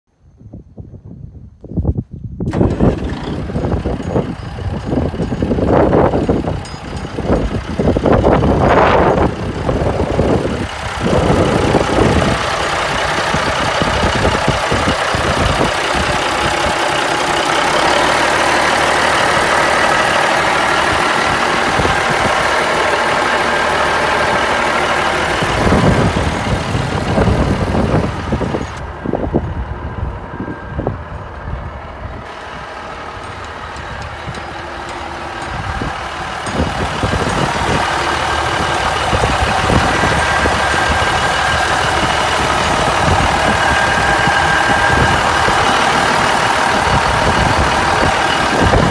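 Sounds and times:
diesel engine idling: 2.5s - 48.9s.

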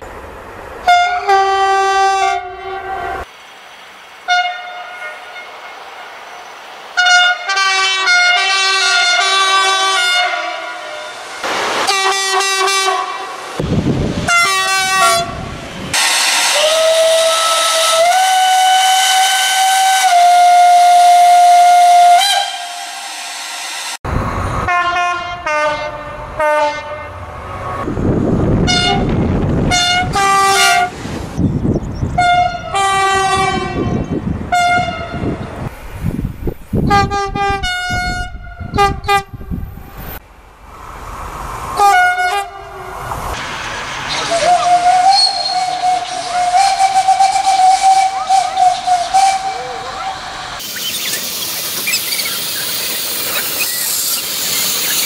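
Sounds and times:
train rumbling past: 0.0s - 55.0s
electric train horns: 0.8s - 3.3s, 4.2s - 6.2s, 7.0s - 13.6s, 14.2s - 24.0s, 24.6s - 27.4s, 28.6s - 31.0s, 32.1s - 35.4s, 36.8s - 39.4s, 41.8s - 43.1s, 44.3s - 50.6s.

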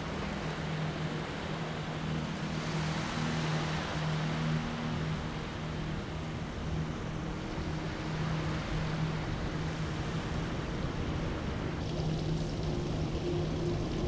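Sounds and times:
sea rushing: 0.0s - 14.0s
wind: 0.0s - 14.0s
pulsing low hum: 11.8s - 14.0s.

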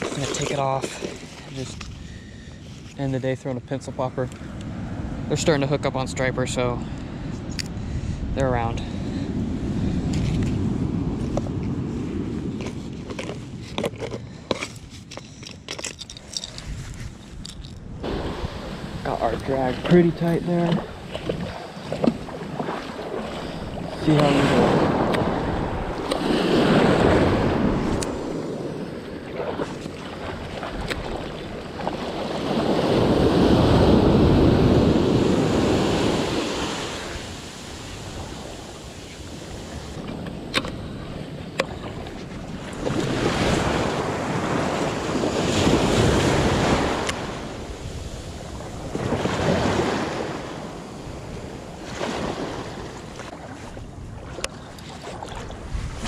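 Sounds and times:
shallow surf washing around legs: 0.0s - 3.0s, 8.1s - 15.2s, 18.0s - 56.0s.

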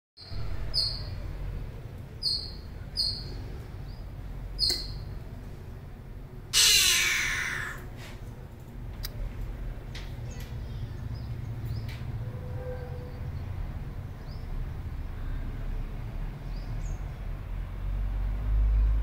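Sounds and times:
bird calling sharply: 6.5s - 7.9s.

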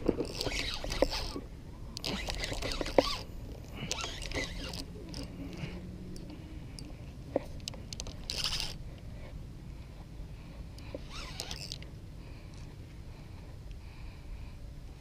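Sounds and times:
fishing reel clicks and knocks: 0.0s - 1.4s, 2.0s - 5.6s, 6.2s - 8.8s, 10.8s - 11.9s.

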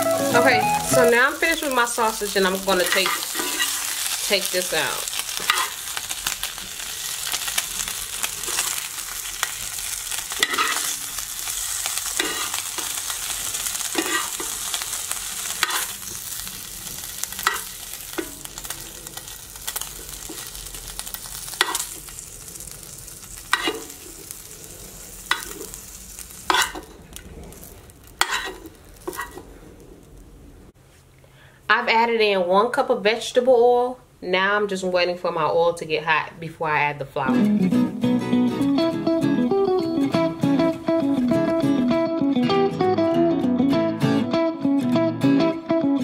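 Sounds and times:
sausage sizzling in skillet: 0.0s - 30.3s
metal spoon scraping pan: 26.5s - 27.6s, 28.2s - 29.4s.

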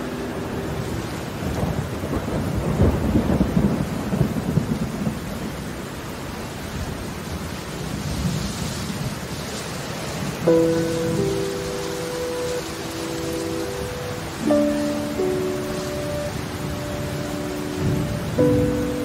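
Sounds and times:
thunder rolling: 0.0s - 5.7s
steady rainfall: 0.0s - 19.0s.

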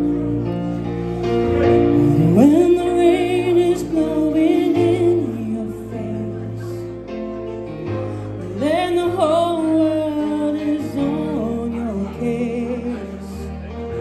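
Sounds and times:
backing music: 0.0s - 14.0s
woman singing into microphone: 1.7s - 7.0s, 8.3s - 13.7s.

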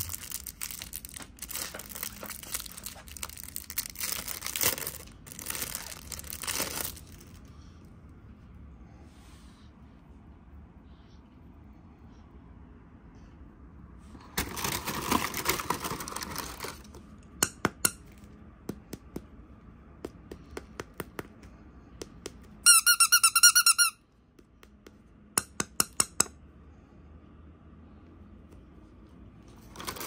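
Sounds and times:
packaging rustling: 0.0s - 7.4s, 14.4s - 17.0s
high-pitched squeaks: 22.6s - 24.0s.

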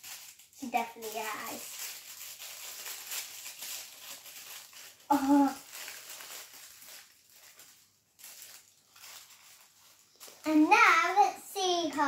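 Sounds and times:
plastic wrapper crinkling: 0.0s - 12.0s
child's vocal sound: 5.1s - 5.6s.

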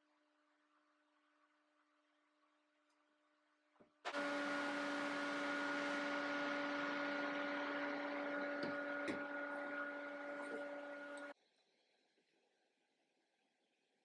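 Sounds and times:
workshop machine motor humming: 4.1s - 11.4s.

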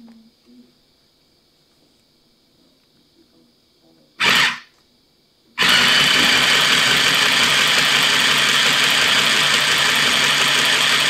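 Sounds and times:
sewing machine stitching: 4.2s - 4.7s, 5.6s - 11.0s.

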